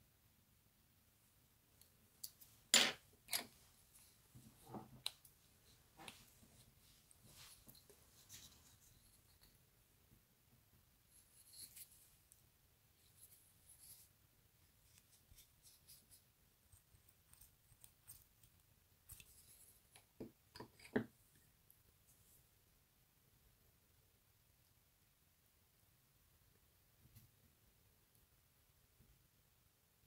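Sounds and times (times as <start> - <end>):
fingers rustling and ticking: 14.8 - 20.2.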